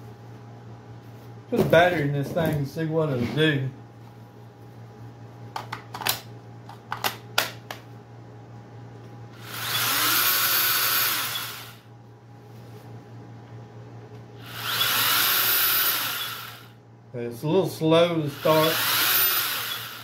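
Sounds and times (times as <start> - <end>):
chainsaw motor running: 9.4 - 11.8, 14.4 - 16.7, 18.2 - 20.0.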